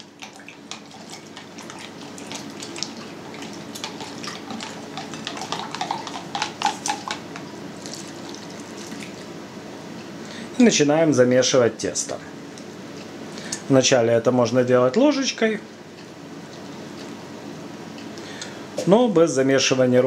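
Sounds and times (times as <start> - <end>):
liquid pouring: 0.0 - 9.3
liquid swishing: 0.0 - 9.4
spoon scraping plastic jug: 3.8 - 7.2.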